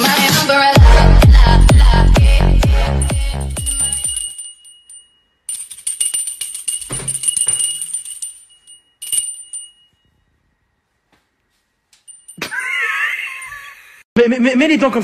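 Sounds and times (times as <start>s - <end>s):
hand bell ringing and jingling: 1.4s - 10.1s, 12.0s - 13.5s.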